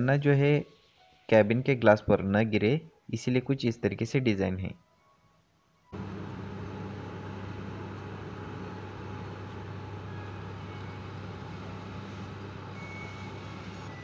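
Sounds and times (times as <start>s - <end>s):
harvester machinery humming: 6.0s - 14.0s.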